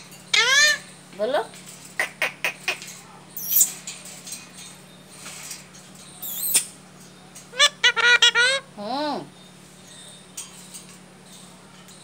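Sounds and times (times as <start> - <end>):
parakeet screeching: 0.3 - 0.9, 6.2 - 6.7, 7.5 - 8.7
parakeet chirps: 3.4 - 3.8, 6.2 - 6.7.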